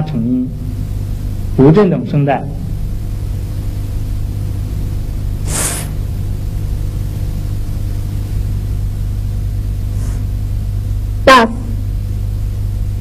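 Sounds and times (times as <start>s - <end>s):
low electrical hum: 0.0s - 13.0s
brief sharp hiss: 5.4s - 6.0s
faint hiss: 5.4s - 6.0s.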